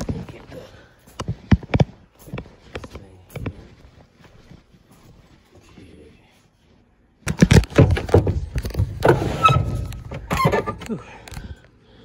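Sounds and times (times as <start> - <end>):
wooden furniture knocking and clattering: 7.3 - 10.8.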